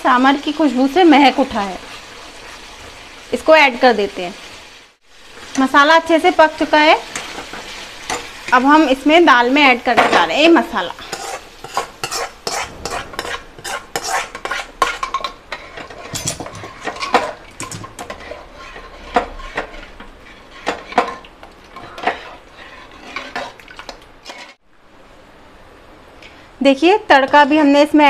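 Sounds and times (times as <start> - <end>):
metal spoon scraping a pan: 6.6 - 8.9, 10.1 - 24.6.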